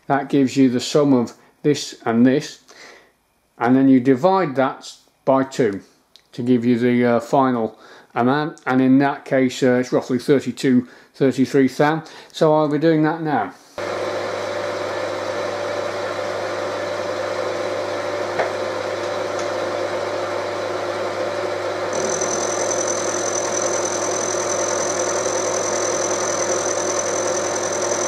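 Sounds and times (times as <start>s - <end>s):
high whine of cutter on steel: 13.8s - 28.0s
milling machine spindle hum: 13.8s - 28.0s.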